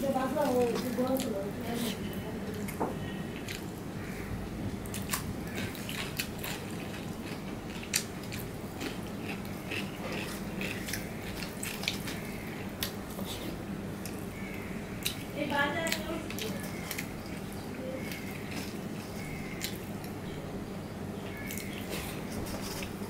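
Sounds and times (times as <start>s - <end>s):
chewing and biting: 4.8s - 20.2s.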